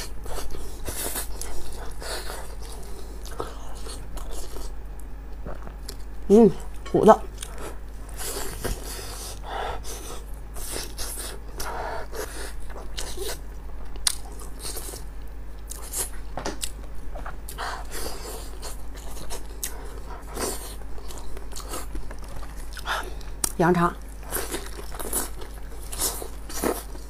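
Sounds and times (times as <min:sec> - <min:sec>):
person biting and chewing: 0:12.6 - 0:15.1, 0:15.7 - 0:23.6, 0:24.2 - 0:27.0.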